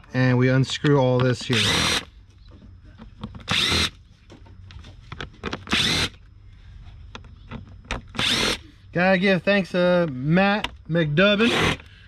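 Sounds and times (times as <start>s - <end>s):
impact driver bursts: 1.5s - 2.1s, 3.5s - 4.0s, 5.7s - 6.2s, 8.2s - 8.6s, 11.4s - 11.9s.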